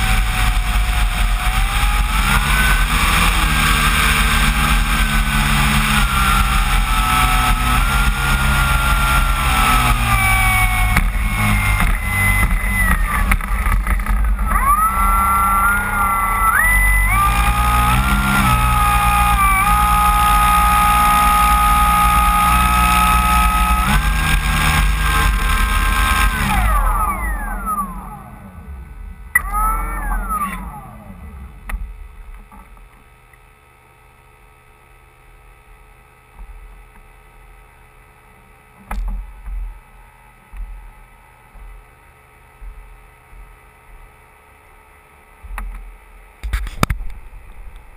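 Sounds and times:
electric motor propeller whine: 0:00.0 - 0:33.4
faint low hum: 0:26.2 - 0:47.9.

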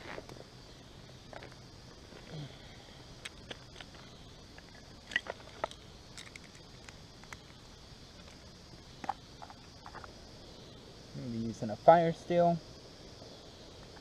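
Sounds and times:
dry sticks clicking and snapping: 0:04.6 - 0:07.6.

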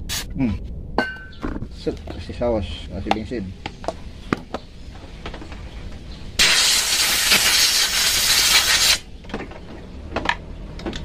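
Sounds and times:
compressed air blow gun hissing: 0:06.4 - 0:09.1.

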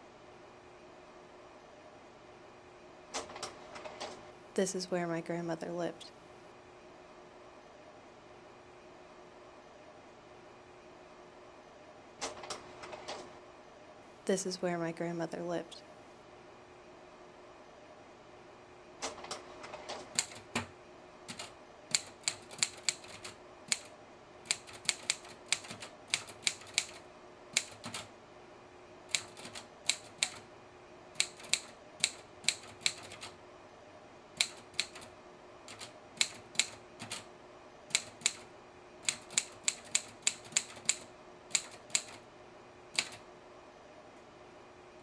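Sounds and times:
faint steady hum: 0:00.0 - 0:45.0
typewriter keystrikes: 0:19.2 - 0:20.7, 0:21.3 - 0:23.9, 0:24.5 - 0:27.0, 0:27.6 - 0:28.1, 0:29.1 - 0:30.4, 0:31.2 - 0:33.3, 0:34.4 - 0:35.1, 0:35.7 - 0:37.3, 0:37.9 - 0:42.2, 0:42.9 - 0:43.2.

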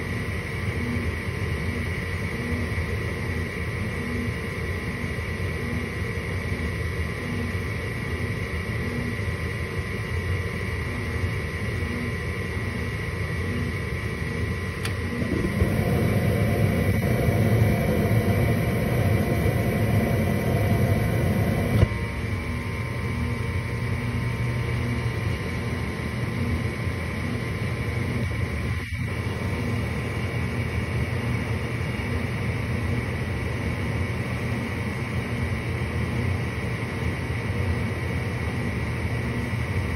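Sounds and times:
furnace motor humming: 0:00.0 - 0:39.9
gas burners rushing: 0:14.8 - 0:21.9.

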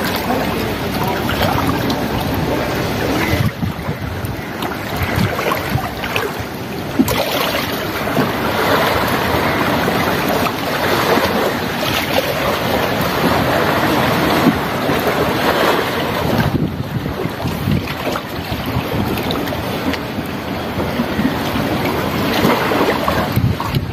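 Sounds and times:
sea surf rushing: 0:00.0 - 0:23.9
wind buffeting microphone: 0:00.0 - 0:23.9.

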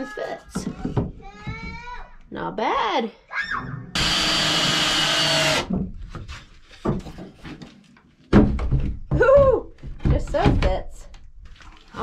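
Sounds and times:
cordless drill driving screw: 0:04.0 - 0:05.7.

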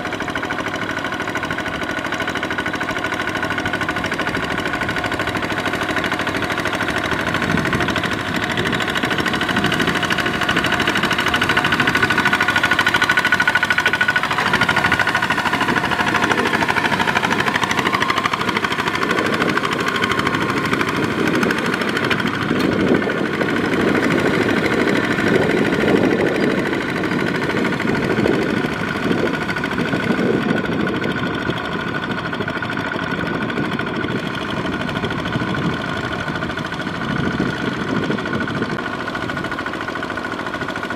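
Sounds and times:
diesel engine running: 0:00.0 - 0:40.9
wheels splashing in mud and water: 0:05.1 - 0:31.0.

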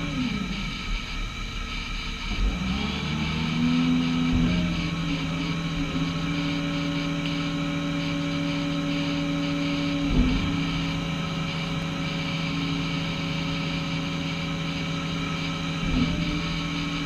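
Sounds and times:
excavator diesel engines droning: 0:00.0 - 0:17.0.

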